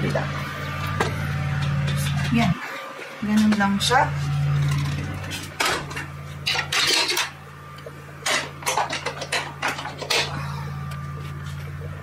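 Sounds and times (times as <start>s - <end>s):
steady low hum: 0.0s - 12.0s
hard objects clattering: 4.5s - 7.4s, 8.2s - 10.6s.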